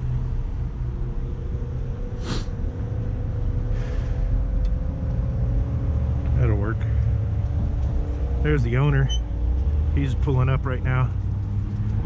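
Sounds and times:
vehicle engine rumbling: 0.0s - 12.0s
short sharp scrape: 2.2s - 2.5s.

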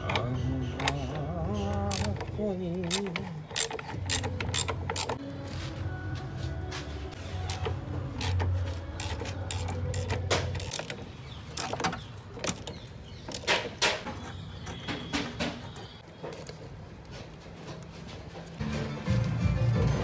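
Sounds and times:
metallic clicks of hand wrench: 0.0s - 5.2s.

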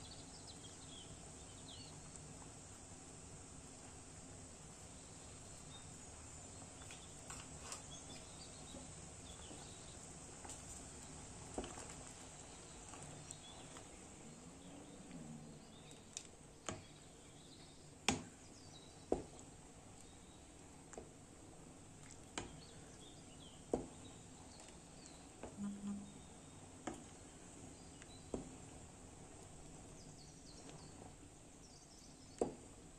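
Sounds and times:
jam bubbling in a pot: 0.4s - 14.1s, 18.9s - 31.5s.

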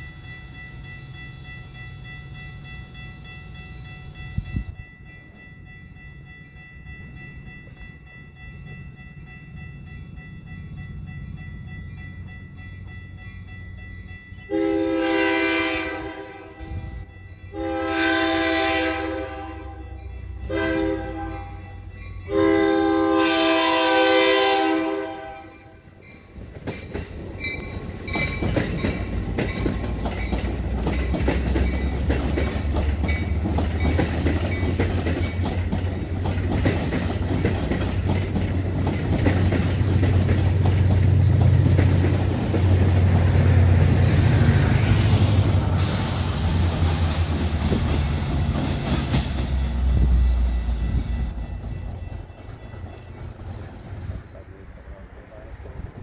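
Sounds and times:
diesel locomotive engine: 0.0s - 56.0s
train horn blasts: 14.5s - 26.0s
train wheels rumbling and clattering: 19.7s - 56.0s
faint high squeal: 49.2s - 54.6s.

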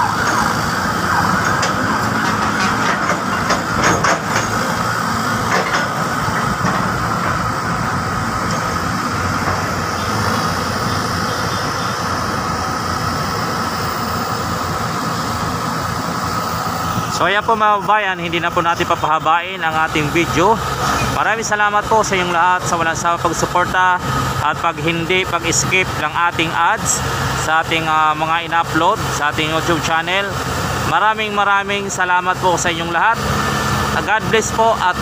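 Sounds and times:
metallic knocks: 0.0s - 7.8s
diesel engines running: 0.0s - 35.0s
hydraulic whine: 0.0s - 35.0s.

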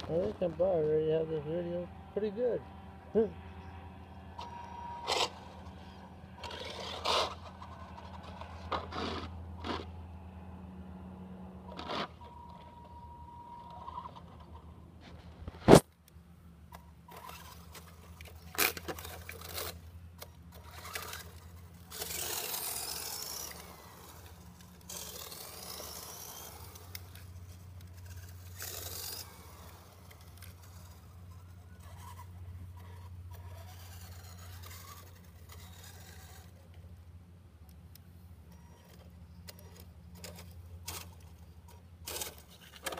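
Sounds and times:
electric motor whirring: 4.4s - 10.0s, 16.7s - 36.7s
tyres scraping on concrete: 4.4s - 10.0s, 17.1s - 36.8s, 38.5s - 42.9s.

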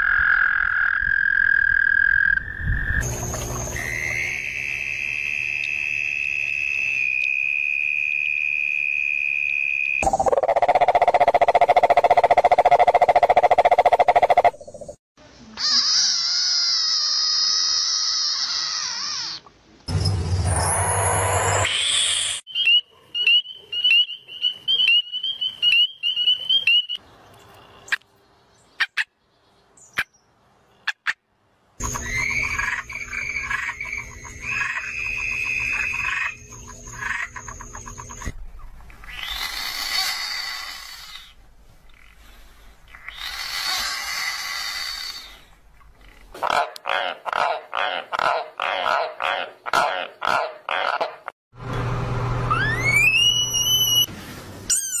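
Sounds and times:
frog high-pitched call: 0.0s - 14.8s, 31.8s - 38.3s, 52.5s - 54.1s
toad trilling: 6.6s - 14.9s, 31.8s - 38.3s, 38.9s - 41.3s, 42.9s - 46.2s, 52.5s - 54.1s
frog harsh scream: 15.6s - 19.4s, 31.8s - 38.2s, 39.0s - 41.3s, 42.9s - 45.5s, 52.5s - 54.1s.

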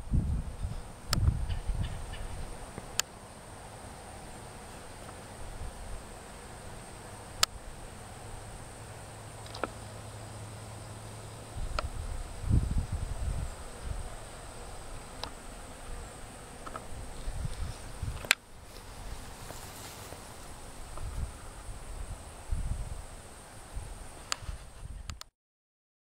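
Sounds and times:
wind rumble on microphone: 0.0s - 3.0s, 11.5s - 15.2s, 16.9s - 25.3s.

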